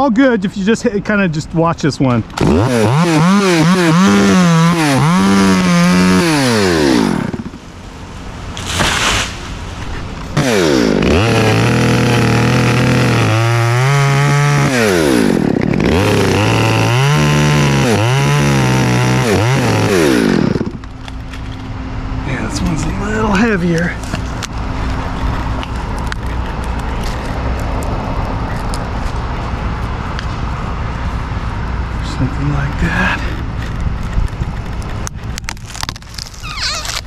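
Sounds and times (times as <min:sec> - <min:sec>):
chainsaw cutting wood: 0:02.3 - 0:07.7, 0:10.3 - 0:21.2.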